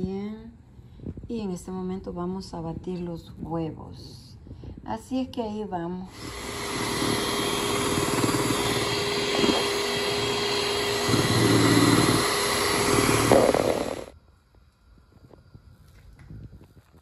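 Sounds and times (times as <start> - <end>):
electric hand mixer whipping eggs: 6.1 - 14.1.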